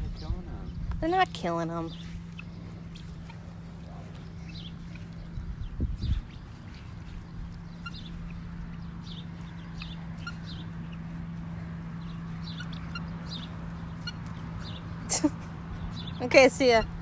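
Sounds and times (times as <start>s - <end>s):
low steady hum: 0.0s - 17.0s
guineafowl chirping calls: 1.9s - 15.0s.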